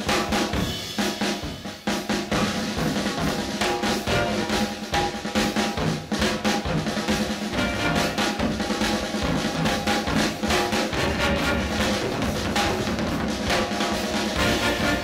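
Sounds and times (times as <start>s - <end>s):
backing instruments: 0.0s - 15.0s
drum kit beats with fills: 0.0s - 15.0s
bass line: 7.5s - 8.2s, 11.0s - 13.3s, 14.4s - 15.0s.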